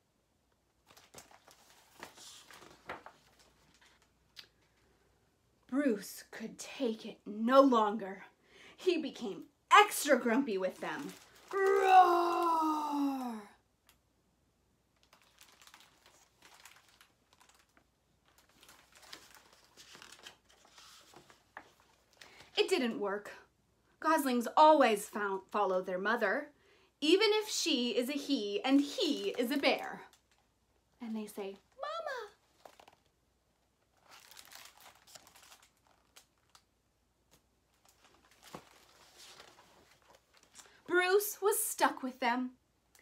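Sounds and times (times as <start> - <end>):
paper pages turning: 0.8 - 4.1, 10.1 - 12.4, 15.0 - 22.5, 32.5 - 33.1, 33.9 - 36.7, 37.3 - 40.8.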